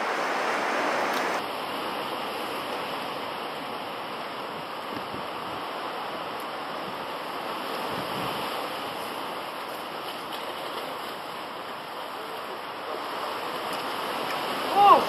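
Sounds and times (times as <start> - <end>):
surf washing over rocks: 0.0 - 15.0.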